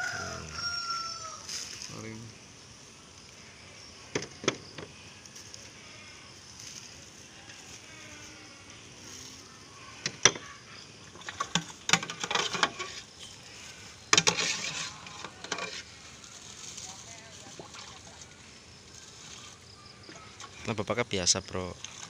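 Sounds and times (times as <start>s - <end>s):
plastic bags rustling: 14.3s - 18.3s.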